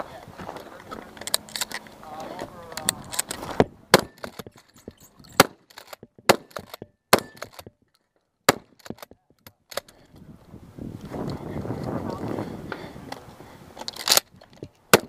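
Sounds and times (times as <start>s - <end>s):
shotgun shots: 3.9s - 7.7s, 8.5s - 9.1s.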